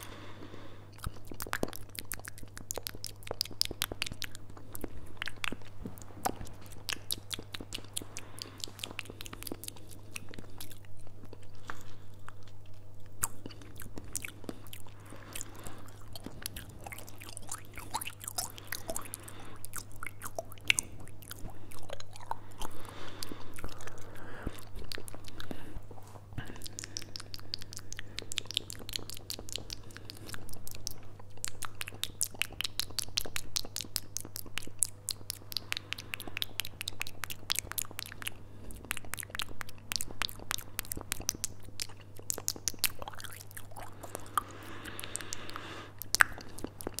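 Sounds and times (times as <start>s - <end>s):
mouth clicks and smacks: 0.0s - 47.0s.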